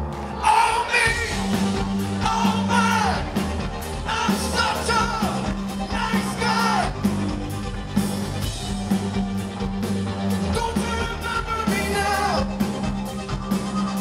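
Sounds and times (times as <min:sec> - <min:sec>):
bass line: 0:00.0 - 0:14.0
drums: 0:00.0 - 0:14.0
keyboards: 0:00.0 - 0:14.0
person singing: 0:00.4 - 0:03.4, 0:04.0 - 0:07.0.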